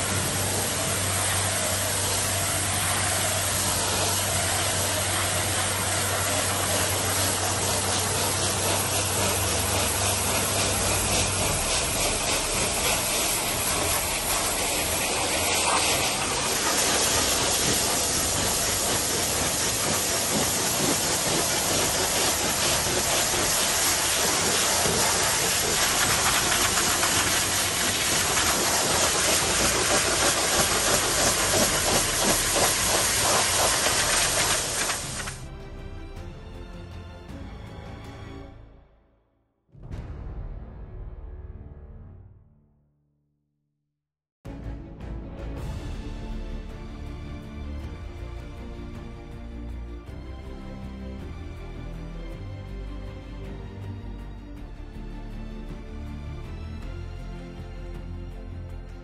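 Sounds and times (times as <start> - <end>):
high-pressure water spray hissing: 0.0 - 35.4.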